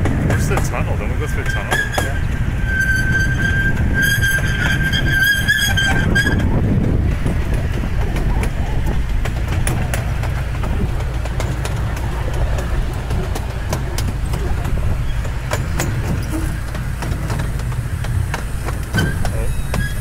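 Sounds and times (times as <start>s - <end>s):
train cars rumbling on track: 0.0s - 20.0s
wheels clicking on rails: 0.0s - 20.0s.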